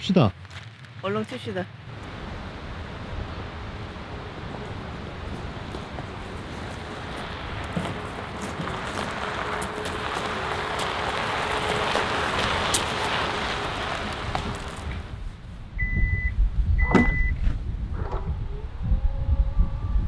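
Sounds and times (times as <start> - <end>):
tyres rolling over gravel: 0.0 - 1.6, 3.8 - 15.3
short high beeps: 15.8 - 17.4
tailgate latch click: 16.8 - 17.2.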